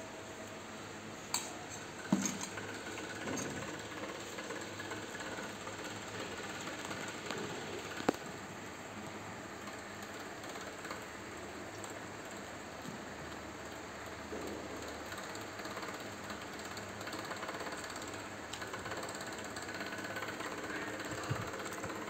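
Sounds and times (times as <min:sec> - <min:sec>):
steady background hum: 0:00.0 - 0:22.0.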